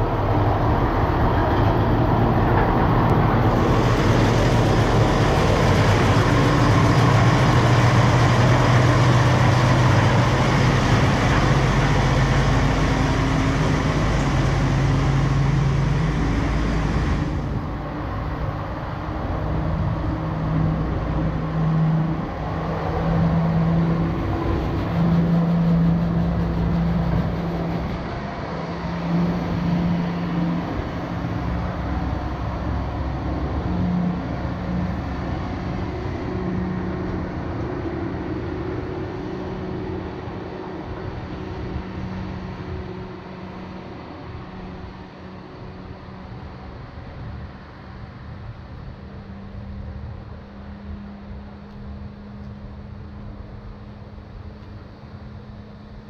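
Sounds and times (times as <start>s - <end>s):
rack locomotive rumbling: 0.0s - 18.2s, 19.4s - 38.2s
humming engine note: 0.0s - 56.0s
locomotive hiss: 3.3s - 17.8s, 23.6s - 30.6s.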